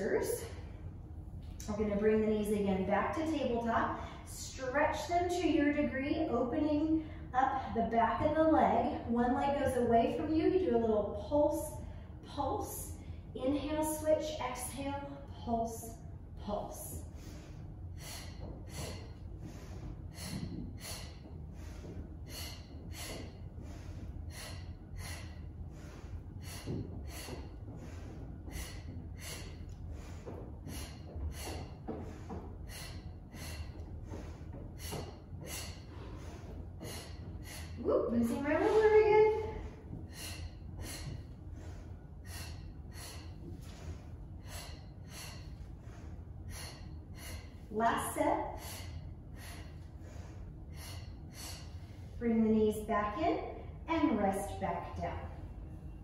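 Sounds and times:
woman breathing sharply: 0:16.9 - 0:52.2.

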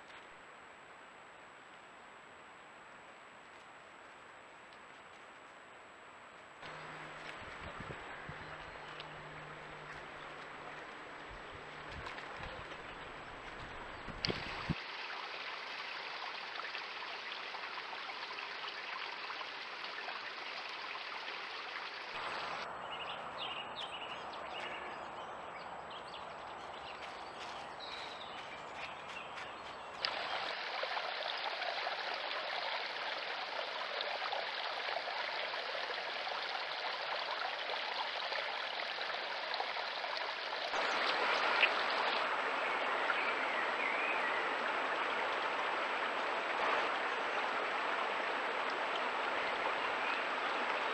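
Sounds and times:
stream water rushing: 0:06.6 - 0:22.7, 0:29.0 - 0:50.9.

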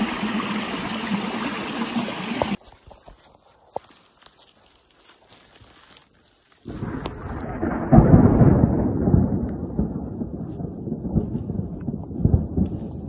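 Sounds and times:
footsteps on leaf litter: 0:02.6 - 0:08.5.

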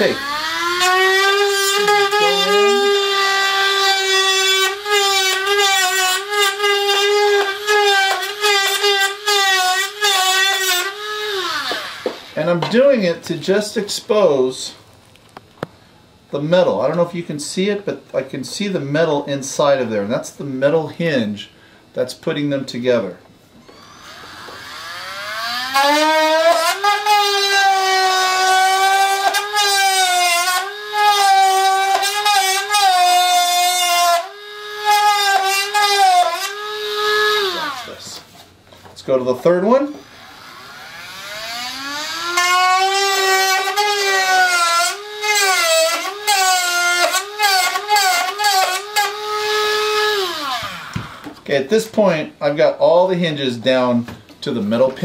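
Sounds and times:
rotary tool whining: 0:00.0 - 0:12.4, 0:23.6 - 0:38.2, 0:39.9 - 0:51.4.

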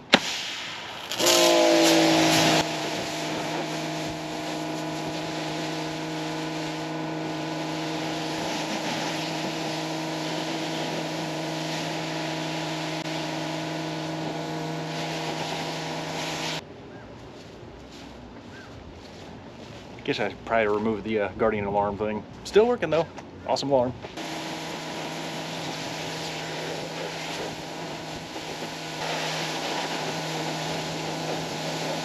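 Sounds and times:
water spray hissing: 0:00.0 - 0:16.6, 0:24.2 - 0:32.0
pressure washer motor hum: 0:01.0 - 0:16.6, 0:24.1 - 0:32.0.

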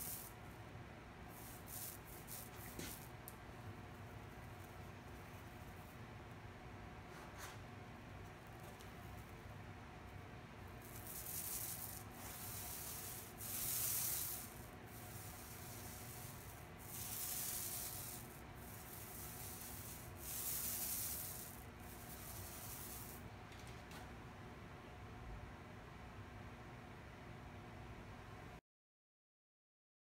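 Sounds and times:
paint roller rolling on metal: 0:00.0 - 0:00.4, 0:01.3 - 0:03.2, 0:10.8 - 0:23.7.

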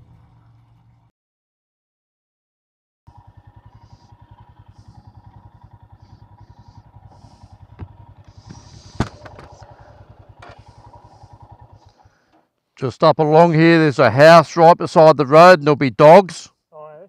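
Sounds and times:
motorcycle engine running: 0:00.0 - 0:01.1, 0:03.1 - 0:12.6.

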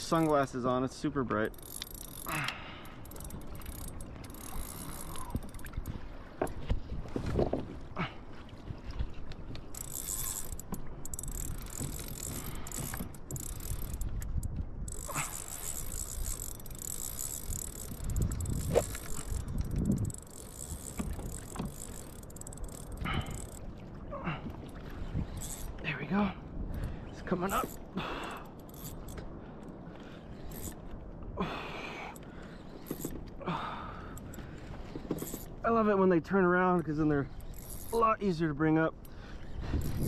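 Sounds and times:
water slapping kayak hull: 0:00.0 - 0:28.4, 0:29.1 - 0:40.0
wind on microphone: 0:03.2 - 0:07.9, 0:08.6 - 0:23.5, 0:24.4 - 0:25.8, 0:39.4 - 0:40.0.

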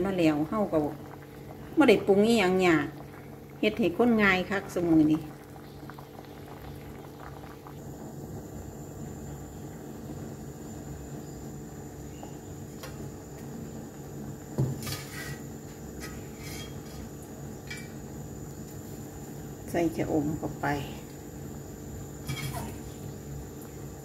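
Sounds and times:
steady low hum: 0:00.0 - 0:24.0
brief scrape: 0:14.8 - 0:15.4
pots and utensils clinking: 0:16.0 - 0:18.0, 0:22.2 - 0:22.8.

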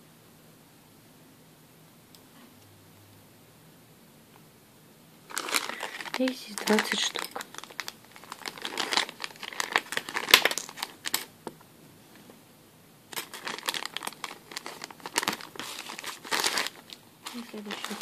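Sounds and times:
plastic bag crinkling: 0:05.2 - 0:11.3, 0:13.1 - 0:18.0
metal clips tipped into bag: 0:10.2 - 0:11.3.

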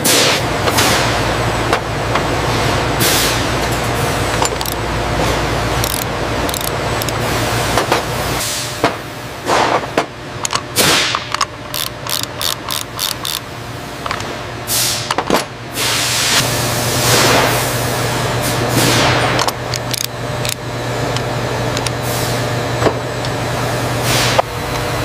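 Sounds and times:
low machine hum: 0:00.0 - 0:25.0
metal hand tool clicking: 0:11.8 - 0:13.4.

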